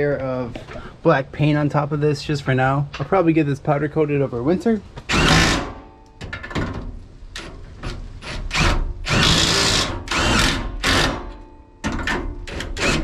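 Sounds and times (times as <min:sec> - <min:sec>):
impact wrench bursts: 0:05.1 - 0:05.8, 0:08.2 - 0:11.3.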